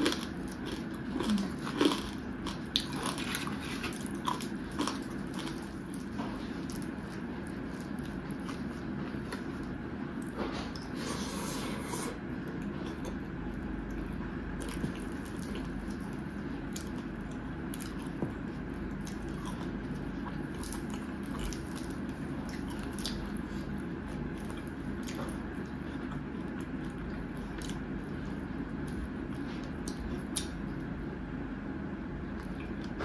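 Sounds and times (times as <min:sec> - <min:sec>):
wet chewing: 0:00.0 - 0:11.0, 0:11.8 - 0:30.9.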